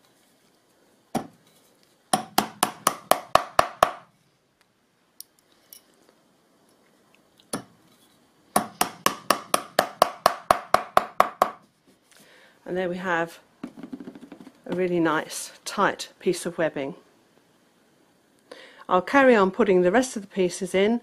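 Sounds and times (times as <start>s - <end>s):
hammer tapping tacks: 2.1s - 4.1s, 8.6s - 11.6s.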